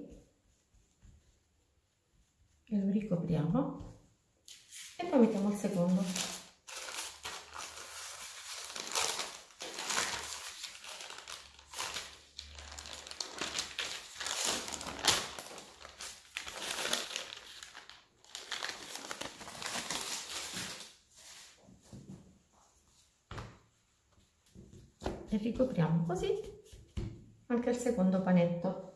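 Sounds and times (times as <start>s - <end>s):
baking paper rustling and crinkling: 4.4s - 23.4s.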